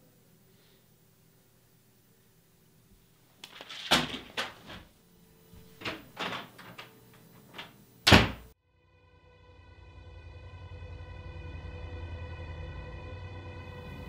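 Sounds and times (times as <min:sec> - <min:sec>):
low steady droning tone: 0:00.0 - 0:03.6, 0:04.3 - 0:14.0
loud door slam: 0:03.7 - 0:04.9, 0:08.0 - 0:08.5.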